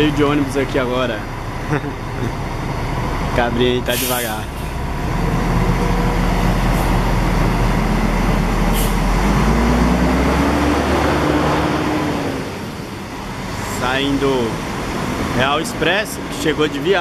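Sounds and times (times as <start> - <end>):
diesel bus engine accelerating: 0.0 - 17.0
air hiss: 3.9 - 4.7, 8.7 - 9.1.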